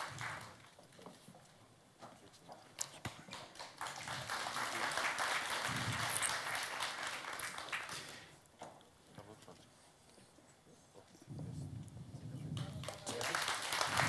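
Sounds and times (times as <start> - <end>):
audience applauding: 0.0 - 0.6, 3.3 - 8.3, 12.8 - 14.0.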